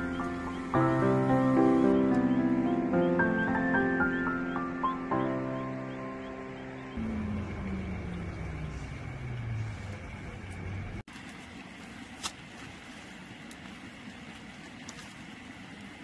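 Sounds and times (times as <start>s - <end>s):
passing car engine hum: 0.8s - 11.1s.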